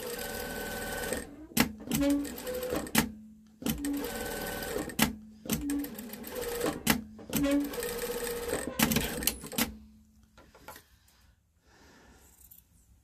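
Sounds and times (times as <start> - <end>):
industrial sewing machine stitching: 0.0 - 9.7.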